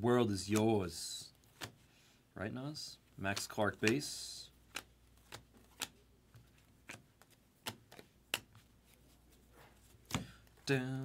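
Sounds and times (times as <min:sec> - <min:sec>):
cards being flipped: 0:01.3 - 0:01.9, 0:03.1 - 0:10.7.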